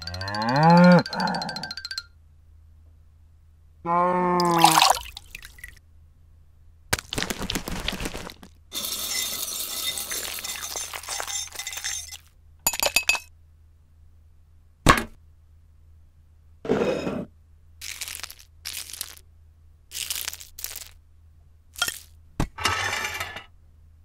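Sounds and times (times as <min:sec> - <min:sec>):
cow mooing: 0:00.0 - 0:01.7, 0:03.9 - 0:04.6
whisk beating in ceramic bowl: 0:08.8 - 0:12.2.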